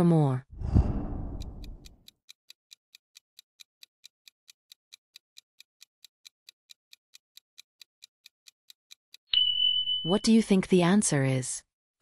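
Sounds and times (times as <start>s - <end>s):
fast clock ticking: 1.2s - 9.2s.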